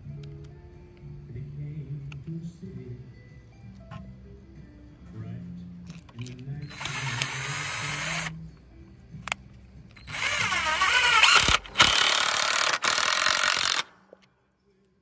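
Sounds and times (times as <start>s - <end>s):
cordless drill driving screw: 6.6s - 8.3s, 10.0s - 14.0s.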